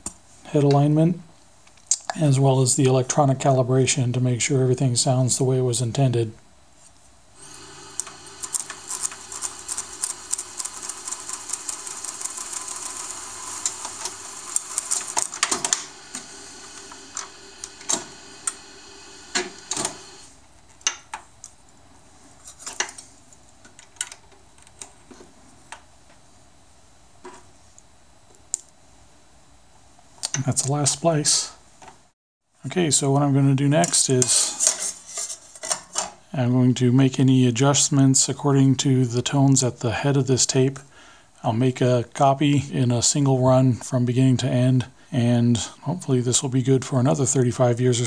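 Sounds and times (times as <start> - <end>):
tape machine whirring: 7.4 - 20.4.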